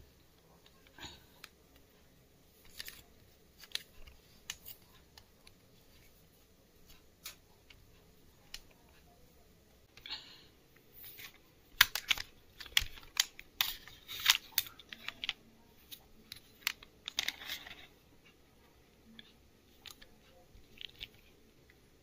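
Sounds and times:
plastic and metal clicks: 11.2s - 17.9s.

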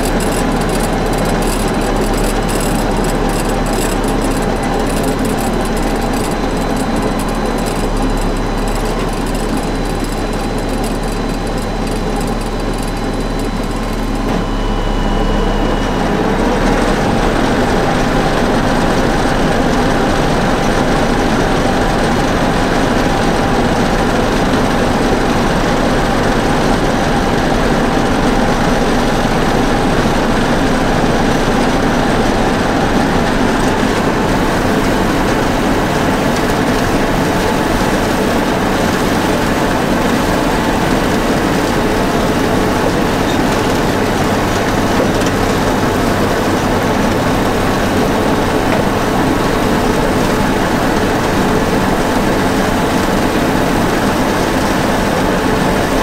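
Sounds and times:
chopper and wagon rattle: 0.0s - 14.6s, 15.8s - 56.0s
tractor engine running: 0.0s - 56.0s.

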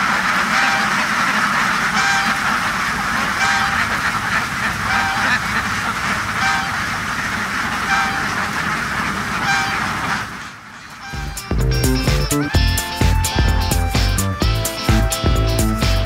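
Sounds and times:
single duck call: 0.0s - 12.7s
flock of ducks quacking: 0.0s - 16.0s.

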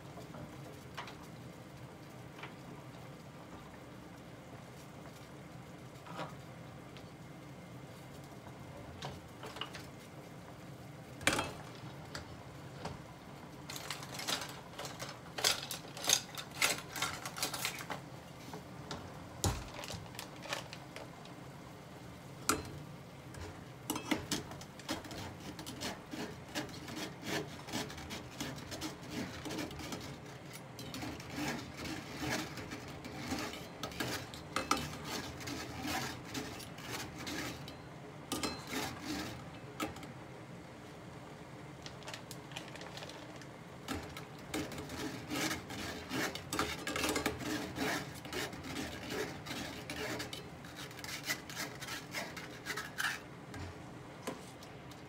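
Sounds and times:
fork and strainer scraping a pot: 13.7s - 18.0s, 23.4s - 40.0s, 43.9s - 54.7s.

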